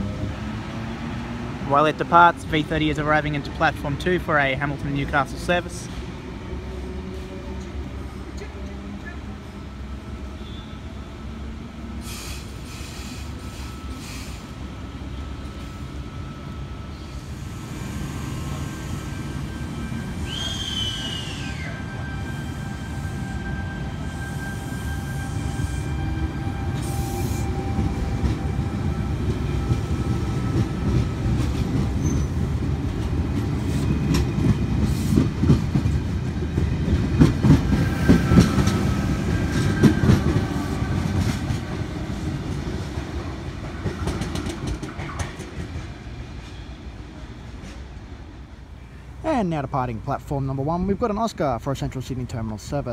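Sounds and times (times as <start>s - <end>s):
train rumble: 0.0s - 52.9s
train brake squeals: 10.4s - 10.9s, 12.0s - 14.6s, 15.6s - 27.6s, 32.0s - 32.4s
wheels clattering over rail joints: 27.8s - 46.2s.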